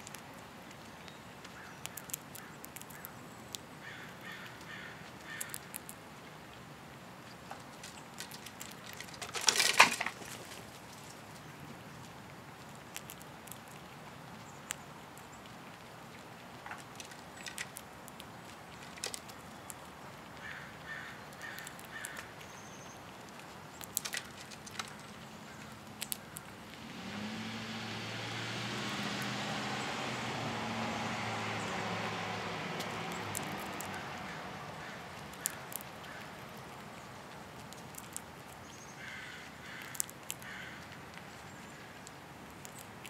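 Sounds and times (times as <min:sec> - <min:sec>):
squirrel handling seeds: 0:00.0 - 0:26.8, 0:32.6 - 0:43.0
passing vehicle engine hum: 0:26.7 - 0:35.4.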